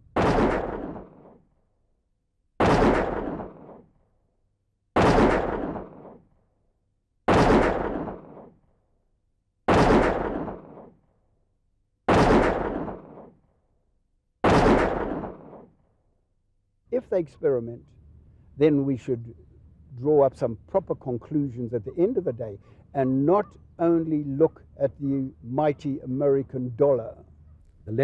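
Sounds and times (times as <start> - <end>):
gunshot with booming echo: 0.0 - 1.5, 2.6 - 4.0, 5.0 - 6.4, 7.3 - 8.7, 9.7 - 11.0, 12.1 - 13.4, 14.4 - 15.8.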